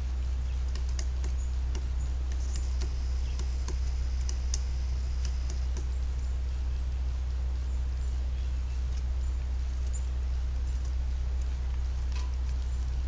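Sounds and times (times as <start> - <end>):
steady low hum: 0.0 - 13.0
woodpeckers pecking: 0.0 - 13.0.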